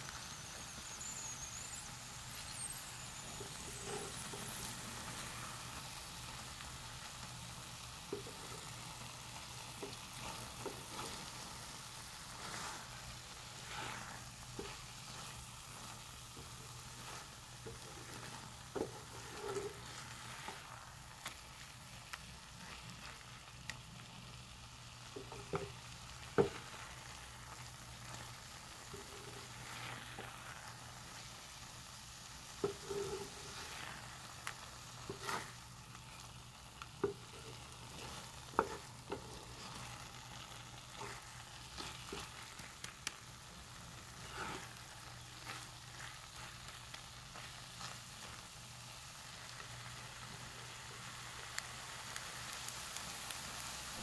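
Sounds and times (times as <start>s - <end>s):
food sizzling in a frying pan: 0.0s - 54.0s
spatula scraping a pan: 0.2s - 6.4s, 8.0s - 21.7s, 25.2s - 31.6s, 32.2s - 48.4s.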